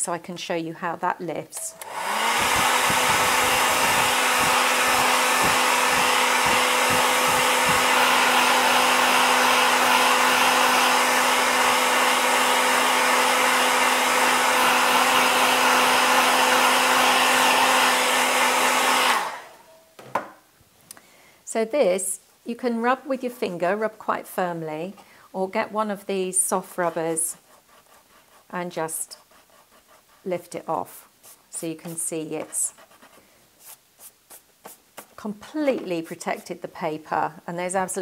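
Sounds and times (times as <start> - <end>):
hair dryer running: 1.6 - 19.7.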